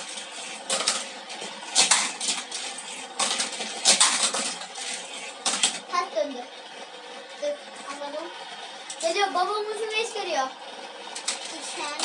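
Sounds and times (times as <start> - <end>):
toy cars clattering on plastic track: 0.0 - 5.9, 11.1 - 12.0.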